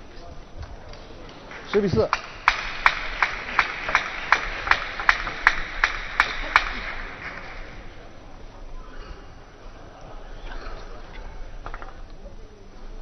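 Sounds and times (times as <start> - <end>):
audience clapping in unison: 0.7 - 7.9.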